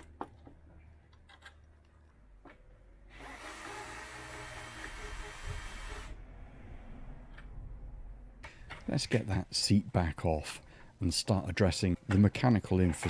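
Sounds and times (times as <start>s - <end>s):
cordless drill running: 3.1s - 6.2s.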